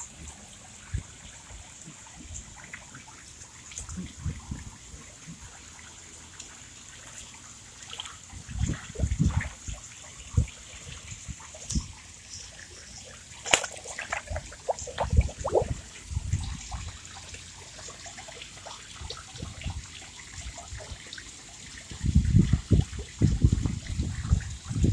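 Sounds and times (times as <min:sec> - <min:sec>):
water splashing around wading feet: 0:13.2 - 0:16.9.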